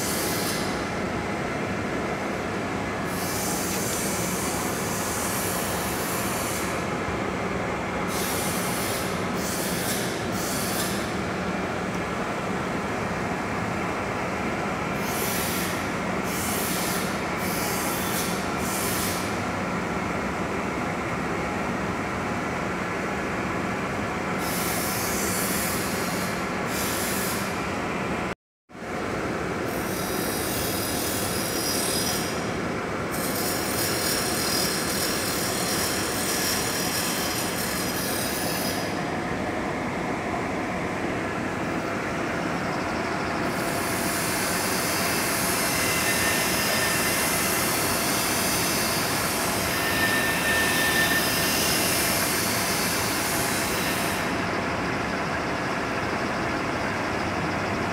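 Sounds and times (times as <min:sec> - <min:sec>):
cutting tool scraping hiss: 0:00.0 - 0:00.7, 0:03.1 - 0:06.7, 0:08.1 - 0:11.1, 0:15.0 - 0:19.3, 0:24.4 - 0:27.5
metal lathe running: 0:33.1 - 0:39.0, 0:42.1 - 0:57.8.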